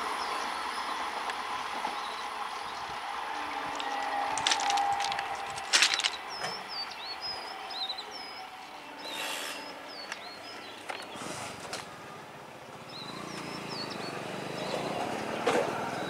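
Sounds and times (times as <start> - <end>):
small birds chirping: 12.8 - 15.4.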